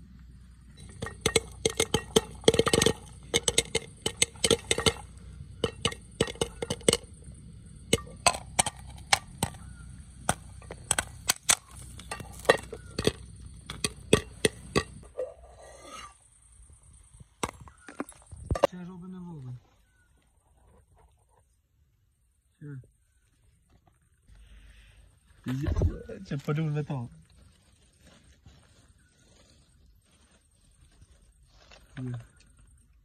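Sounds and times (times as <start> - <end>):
popcorn popping: 0.8 - 15.2.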